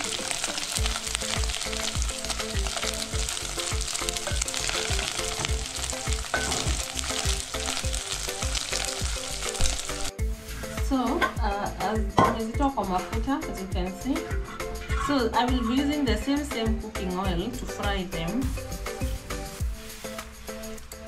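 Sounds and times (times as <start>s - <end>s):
fish frying in hot oil: 0.0s - 10.1s
low thumping beat: 16.1s - 19.8s.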